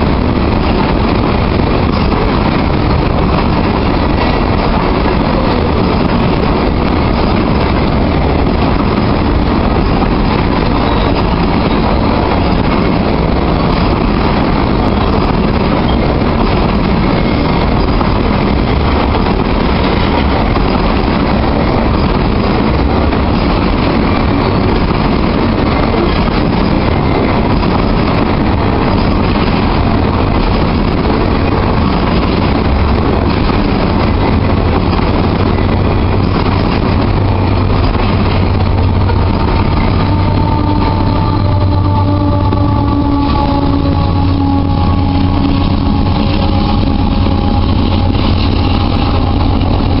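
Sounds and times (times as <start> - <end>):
diesel locomotive engine: 0.0 - 50.0
train wheels rumbling on rails: 0.0 - 50.0.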